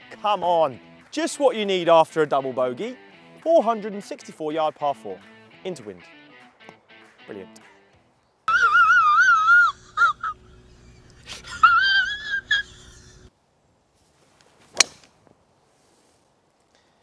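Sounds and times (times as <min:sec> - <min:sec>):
person crying: 0:08.5 - 0:13.3
golf club striking ball: 0:14.7 - 0:15.1.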